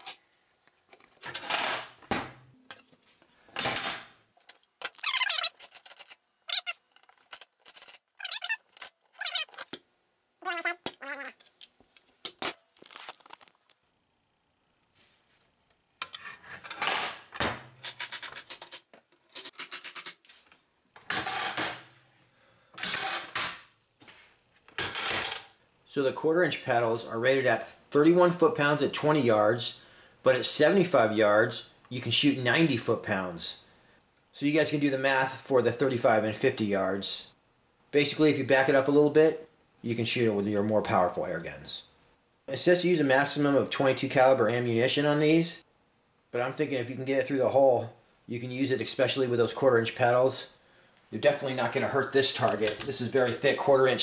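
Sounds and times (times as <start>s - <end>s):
high squeak: 4.9s - 6.8s, 8.2s - 9.7s
metal target scraping on table: 16.0s - 18.7s.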